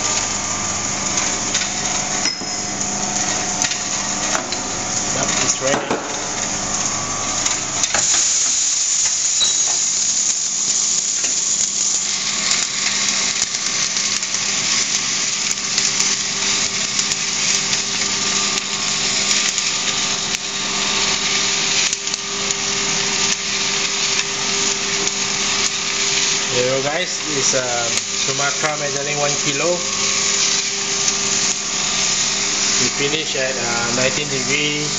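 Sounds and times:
motor hum: 0.0 - 10.3, 11.6 - 34.9
coffee beans rattling and hissing: 0.0 - 34.9.

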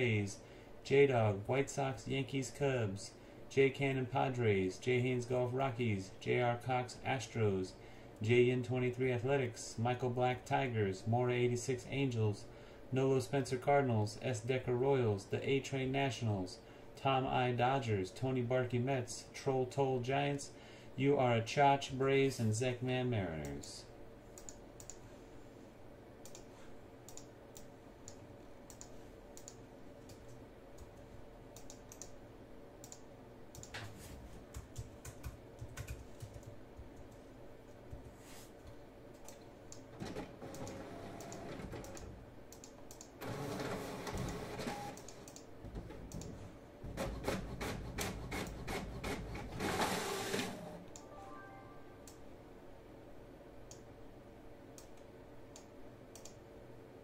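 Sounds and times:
mouse clicks: 31.6 - 32.2, 54.8 - 56.4
rubbing shuffling noise: 33.8 - 34.5, 38.0 - 38.6.

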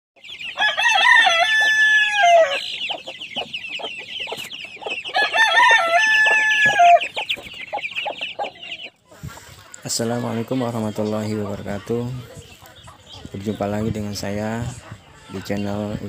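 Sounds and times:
chickens clucking: 0.2 - 16.0
rooster crowing: 0.6 - 2.7, 5.1 - 7.1.

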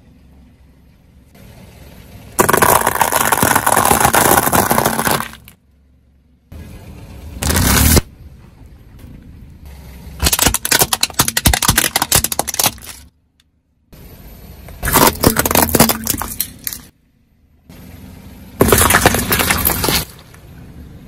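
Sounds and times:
tyre crushing biscuits and plastic: 2.4 - 5.6, 10.2 - 13.1, 14.8 - 16.9, 18.6 - 20.3.

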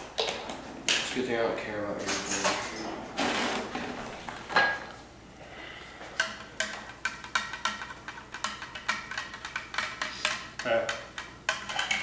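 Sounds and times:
spoon clinking in a cup: 6.6 - 12.0.

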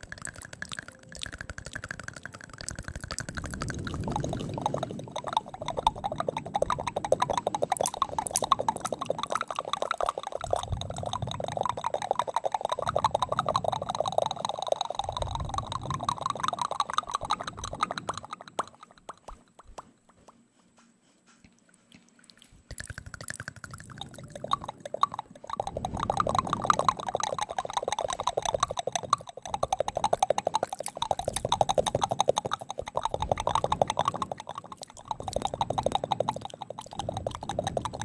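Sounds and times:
wet lip and tongue clicking: 0.0 - 38.0
low muffled puffs: 20.2 - 22.7.

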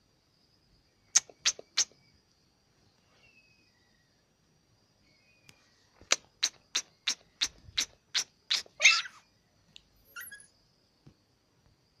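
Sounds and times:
small dog yapping: 7.1 - 9.2, 10.1 - 10.5
dog yelping: 8.6 - 9.2, 10.1 - 10.5.

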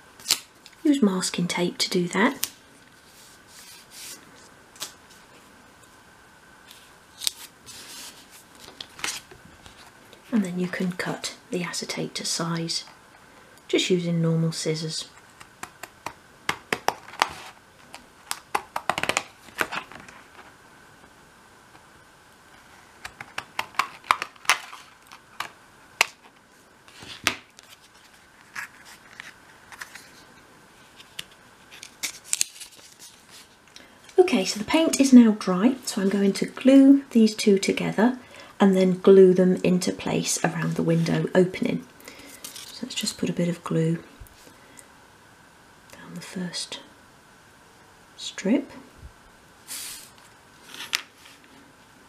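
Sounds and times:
tape rustling: 6.6 - 10.3, 15.2 - 20.6, 22.5 - 33.8.

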